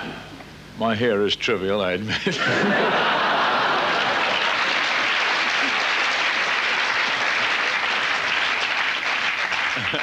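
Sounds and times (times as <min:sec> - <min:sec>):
large audience applauding: 0:03.5 - 0:10.0.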